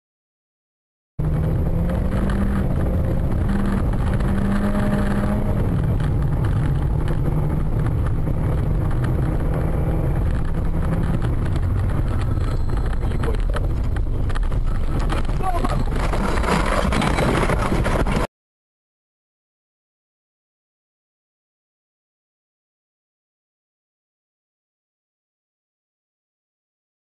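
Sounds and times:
car engine and tyre noise inside: 1.2s - 18.3s.

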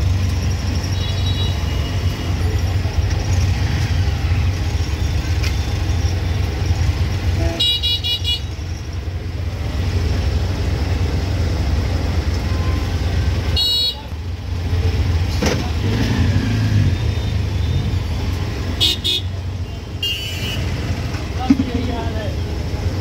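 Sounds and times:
auto-rickshaw engine rumbling: 0.0s - 23.0s
vehicle horns honking: 1.0s - 2.2s, 7.2s - 8.6s, 12.5s - 14.2s, 18.8s - 20.9s.

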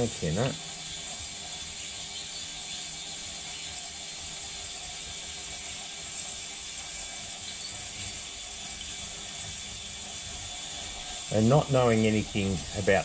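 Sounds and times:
high-pitched buzz: 10.2s - 13.0s.

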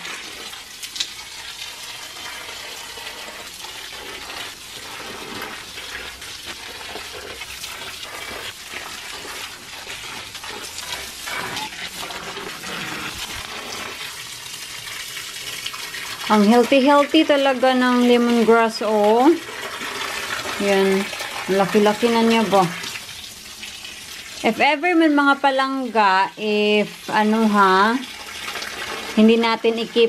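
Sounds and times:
hose water pouring onto soil: 0.0s - 30.0s.

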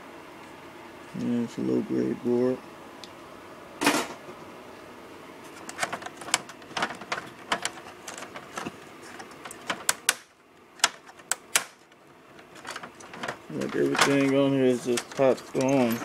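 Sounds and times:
plastic and metal parts clicking: 10.8s - 16.0s.

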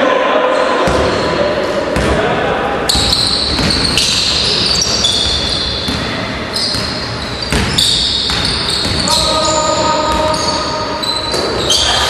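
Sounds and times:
crowd and court noise: 0.0s - 12.0s
basketball dribbling on gym floor: 2.9s - 10.5s.

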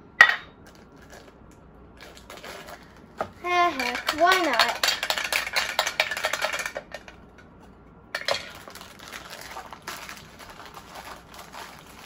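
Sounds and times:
metal can rattling: 3.5s - 6.9s.

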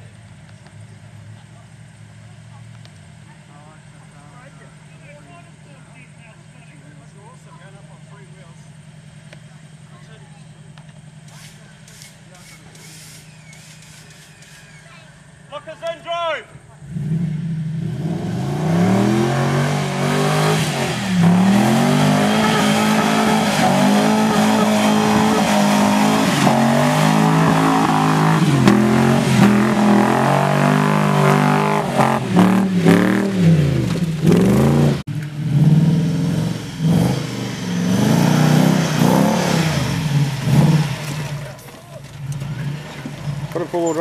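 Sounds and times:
off-road truck engines revving: 0.0s - 44.0s
wheels spinning in mud: 11.2s - 15.1s.

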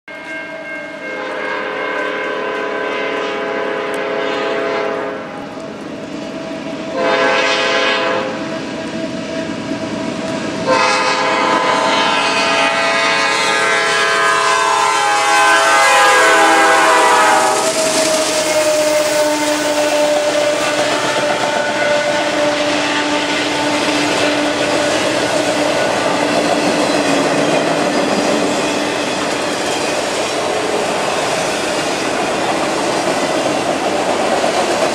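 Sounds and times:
locomotive air horn: 0.1s - 5.6s, 6.2s - 26.8s
train drone: 0.1s - 34.9s
train wheels clattering: 5.5s - 34.9s.

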